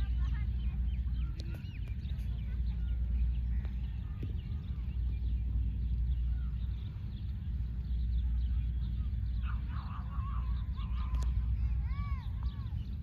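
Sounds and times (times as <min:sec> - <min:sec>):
birds chirping: 0:00.0 - 0:13.0
low steady rumble: 0:00.0 - 0:13.0.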